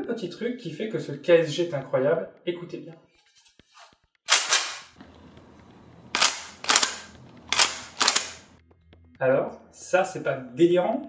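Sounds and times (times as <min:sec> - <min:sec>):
shotgun pump action clacks: 0:04.3 - 0:05.1, 0:06.1 - 0:08.6.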